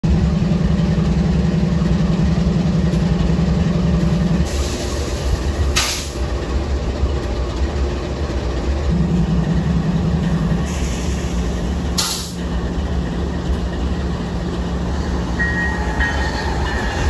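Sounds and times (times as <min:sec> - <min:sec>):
locomotive engine drone: 0:00.0 - 0:17.0
sharp air release: 0:04.4 - 0:06.2, 0:10.6 - 0:12.4.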